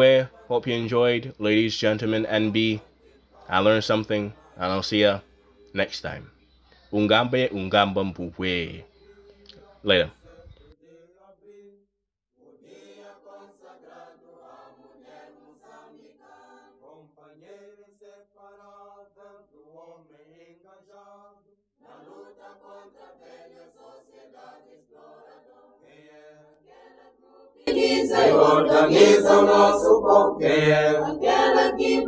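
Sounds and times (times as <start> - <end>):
faint chanting voices: 0.0 - 11.7, 21.8 - 32.0.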